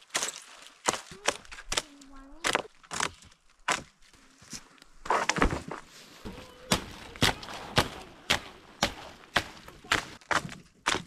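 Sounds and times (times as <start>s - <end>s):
machete chopping branches: 0.0s - 4.0s, 6.3s - 11.0s.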